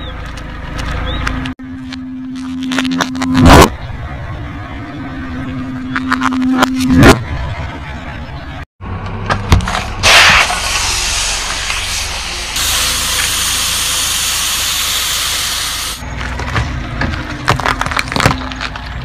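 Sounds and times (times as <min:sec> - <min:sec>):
lollipops crunching under tyre: 0:00.2 - 0:03.7, 0:16.0 - 0:19.0
aerosol can bursting: 0:10.0 - 0:16.0
gas hissing out: 0:10.0 - 0:16.0.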